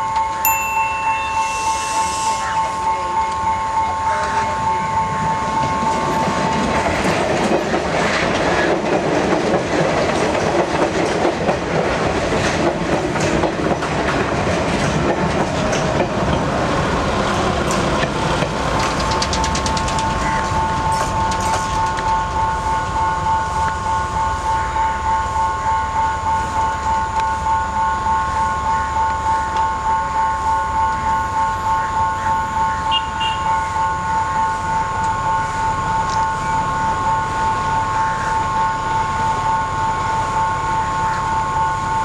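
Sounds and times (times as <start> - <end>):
pulsing high engine whine: 0.0 - 7.9, 16.6 - 42.0.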